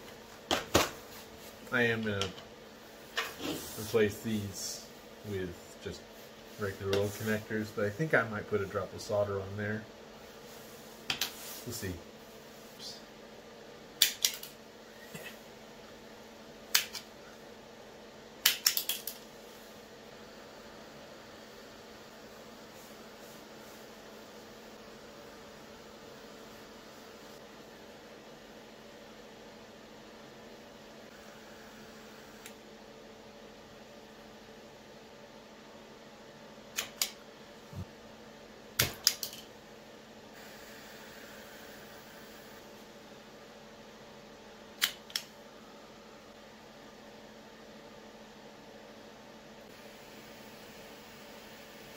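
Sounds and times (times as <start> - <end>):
wire stripper snapping clicks: 14.0 - 14.5, 16.7 - 17.1, 18.4 - 19.2, 36.7 - 37.2, 38.8 - 39.4, 44.8 - 45.3.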